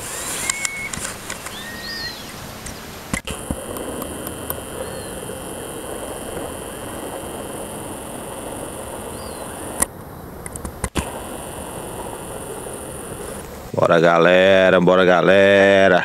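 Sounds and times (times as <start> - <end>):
bird whistles: 0.0 - 2.3, 4.8 - 5.2, 9.1 - 9.7
sharp click: 0.4 - 1.6, 2.6 - 5.1, 9.2 - 11.2.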